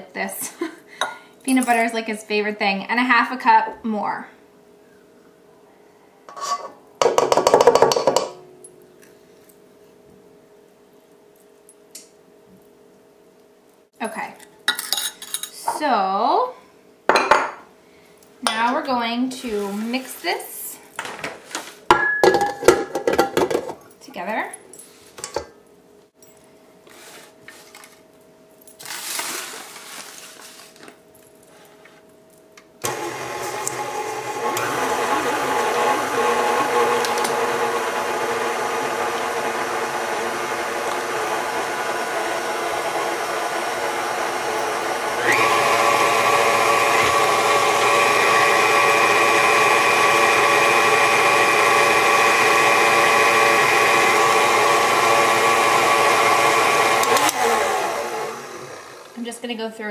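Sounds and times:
handling knocks and rustles: 0:26.2 - 0:32.5
stand mixer motor whir: 0:32.8 - 0:59.2.

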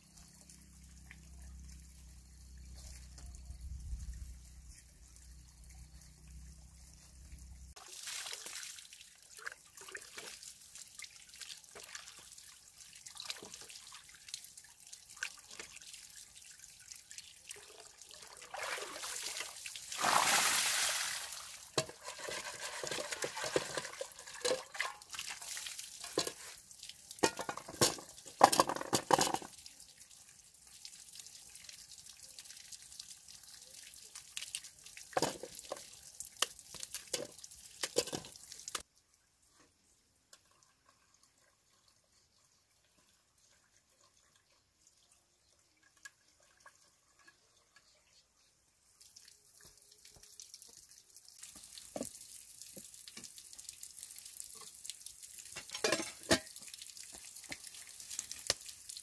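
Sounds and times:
water splashing onto bamboo: 0:07.7 - 0:30.0, 0:30.8 - 0:38.8, 0:49.0 - 0:59.0.

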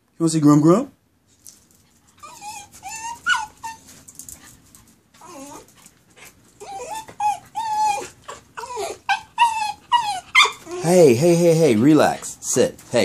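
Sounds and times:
dog whimpering: 0:02.2 - 0:04.0, 0:05.2 - 0:12.7.

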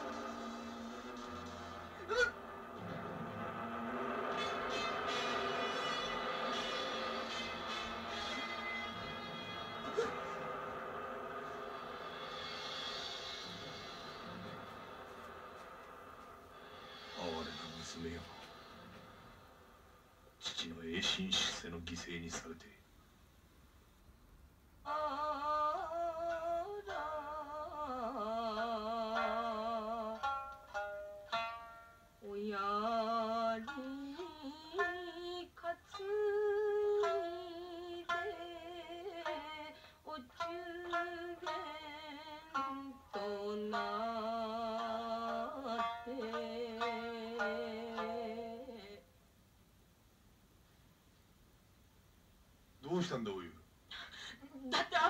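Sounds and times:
shamisen plucking: 0:00.0 - 0:18.5, 0:25.7 - 0:49.0.

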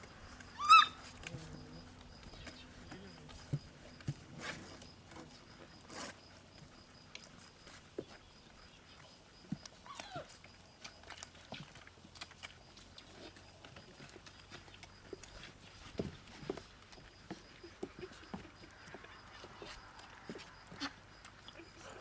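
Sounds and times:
puppy whimper: 0:00.6 - 0:01.1, 0:09.8 - 0:10.4.

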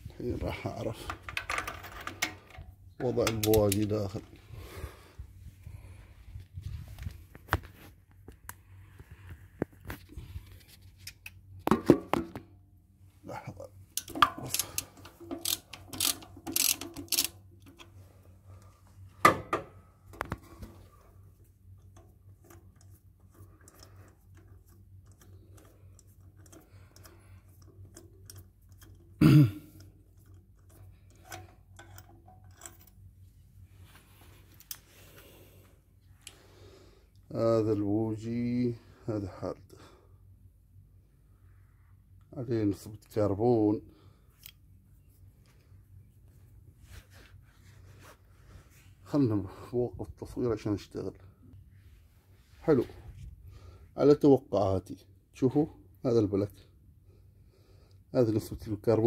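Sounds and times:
metal hand tools clicking: 0:14.0 - 0:17.4.

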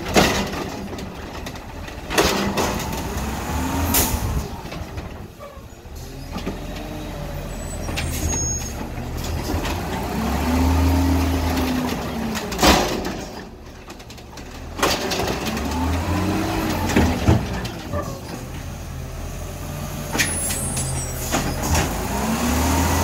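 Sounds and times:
garbage truck engine revving: 0:00.0 - 0:13.6, 0:14.6 - 0:23.0
hydraulic arm lifting cart: 0:20.1 - 0:23.0.

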